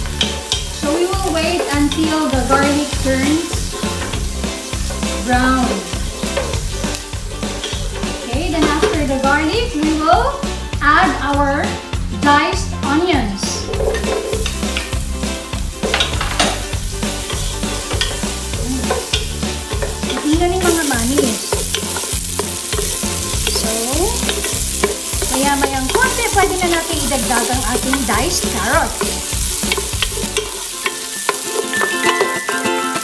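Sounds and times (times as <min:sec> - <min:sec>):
onions sizzling in oil: 0:00.0 - 0:11.3, 0:13.6 - 0:33.0
wooden spoon scraping a pot: 0:17.2 - 0:32.5.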